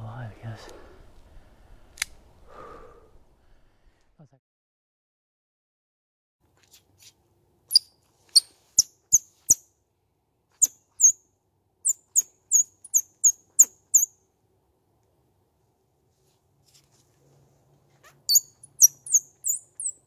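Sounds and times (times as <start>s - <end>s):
high squeaks from grass call: 7.7s - 9.6s, 11.9s - 14.1s, 18.0s - 20.0s.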